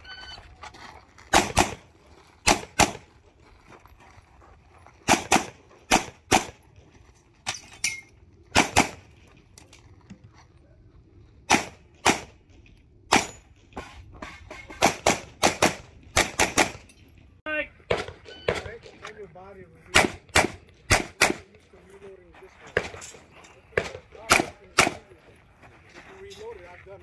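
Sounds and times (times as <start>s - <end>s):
pistol shots: 1.3s - 1.8s, 2.4s - 3.1s, 5.1s - 6.6s, 8.5s - 9.0s, 11.5s - 12.4s, 14.8s - 16.8s, 17.9s - 18.7s, 19.9s - 21.5s, 23.8s - 25.0s.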